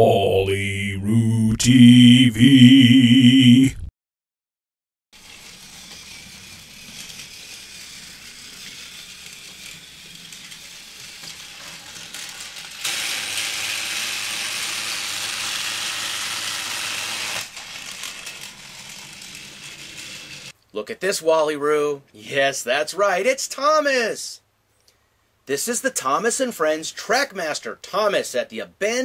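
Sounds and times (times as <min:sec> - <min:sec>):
toy train motor whirring: 0:05.2 - 0:20.6.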